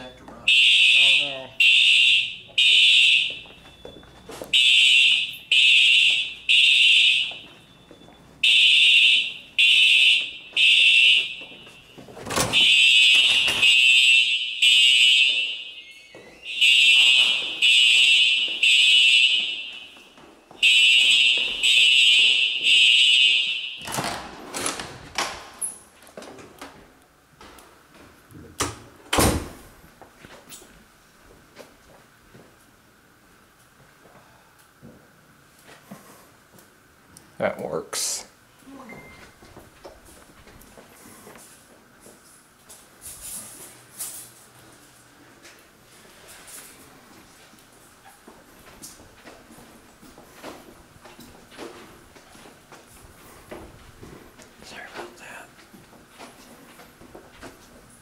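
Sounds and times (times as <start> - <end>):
fire alarm horn blasts: 0.5 - 24.0.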